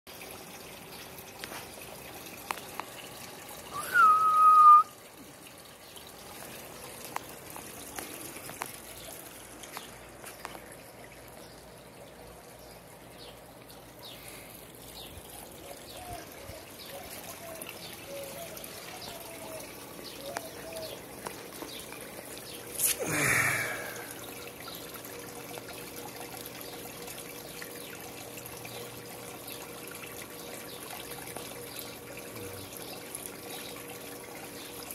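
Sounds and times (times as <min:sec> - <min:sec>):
water trickling over stones: 0:00.1 - 0:34.9
whistle-like tone: 0:03.7 - 0:05.0.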